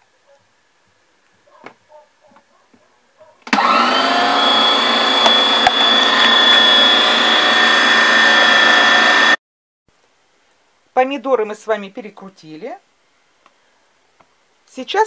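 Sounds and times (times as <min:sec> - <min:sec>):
meat grinder motor whine: 0:03.5 - 0:09.4.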